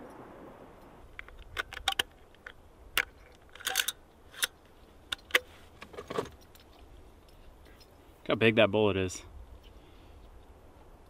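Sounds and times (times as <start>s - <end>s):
cartridges clicking into rifle: 1.2s - 5.5s.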